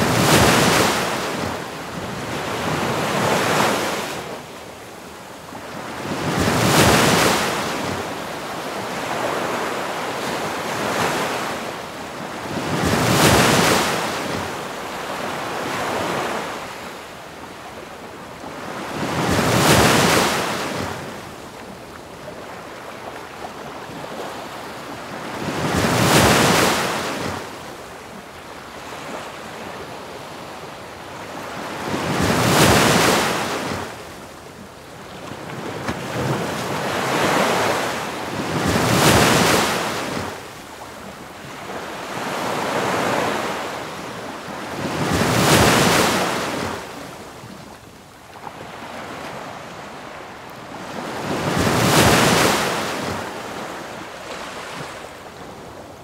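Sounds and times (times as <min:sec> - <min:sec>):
waves crashing: 0:00.0 - 0:04.5, 0:05.9 - 0:08.2, 0:12.5 - 0:16.7, 0:25.4 - 0:27.5, 0:31.6 - 0:34.0, 0:35.7 - 0:40.5, 0:41.6 - 0:47.2, 0:50.7 - 0:55.3.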